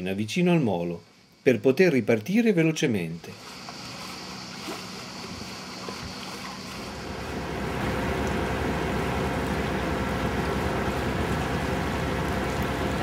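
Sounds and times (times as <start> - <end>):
rush of wind and water: 3.4 - 13.0.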